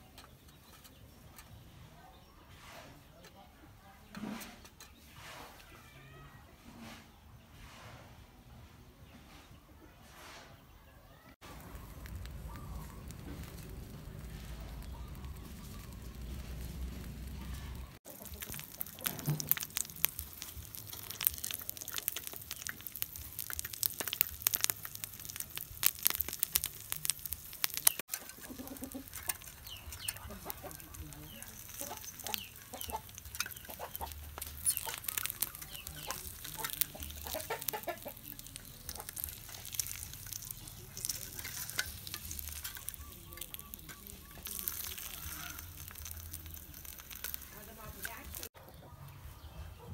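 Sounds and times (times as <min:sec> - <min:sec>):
egg sizzling and crackling: 0:11.4 - 0:48.6.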